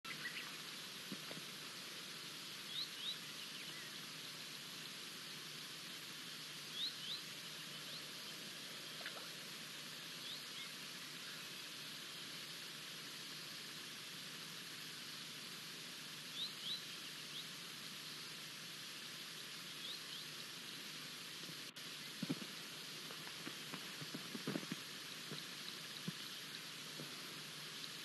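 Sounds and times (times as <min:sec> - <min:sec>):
steady outdoor hiss: 0:00.0 - 0:28.0
bird chirping: 0:00.1 - 0:00.6, 0:19.7 - 0:20.3.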